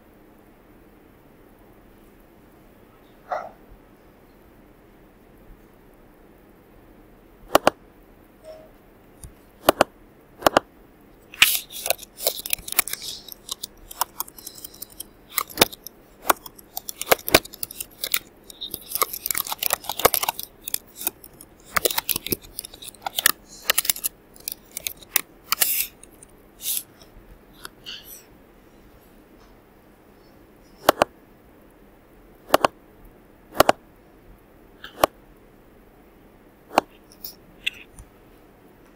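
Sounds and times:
keyboard typing: 0:07.5 - 0:07.8, 0:09.2 - 0:28.0, 0:30.8 - 0:31.1, 0:32.5 - 0:32.8, 0:33.6 - 0:33.8
mouse clicks: 0:07.5 - 0:07.8, 0:09.2 - 0:10.6, 0:30.8 - 0:31.1, 0:32.5 - 0:32.8, 0:33.6 - 0:33.8.

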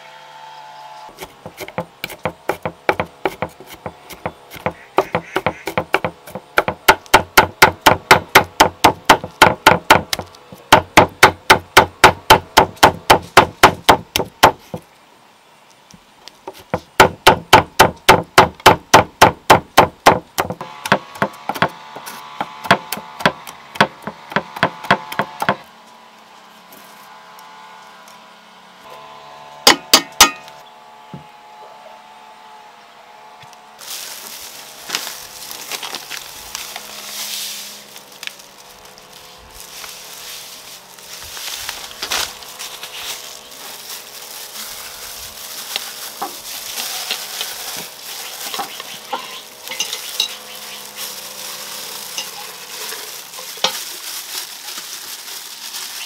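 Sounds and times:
rapid strikes on wood: 0:01.2 - 0:14.8, 0:16.5 - 0:21.8, 0:22.4 - 0:25.6, 0:29.7 - 0:30.4.

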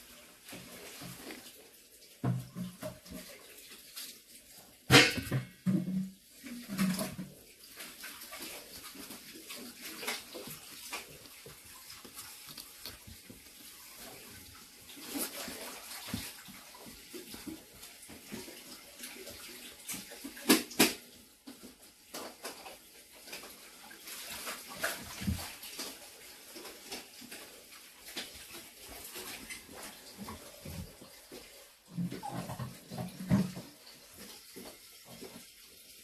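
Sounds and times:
scratching on cardboard: 0:09.1 - 0:17.0.

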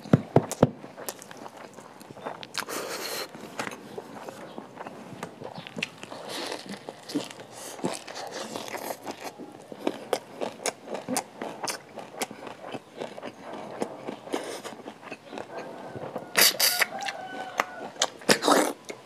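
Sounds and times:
chewing and crunching food: 0:00.0 - 0:19.0
wet mouth clicks and smacks: 0:10.1 - 0:15.6.

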